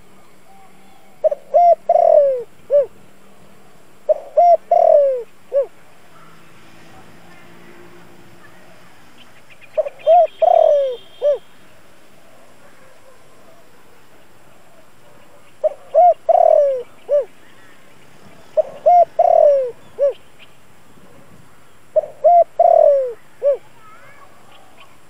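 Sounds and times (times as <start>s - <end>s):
dove cooing: 0.4s - 3.0s, 4.1s - 6.3s, 9.8s - 11.5s, 14.6s - 17.4s, 18.5s - 20.2s, 22.0s - 25.0s.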